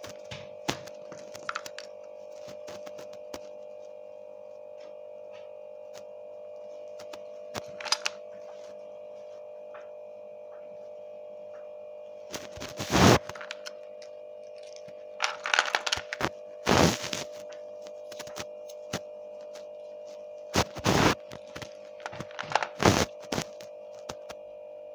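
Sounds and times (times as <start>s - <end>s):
faint steady hum: 0.0s - 24.9s
plastic toys clattering in a box: 14.6s - 16.2s, 22.0s - 22.8s.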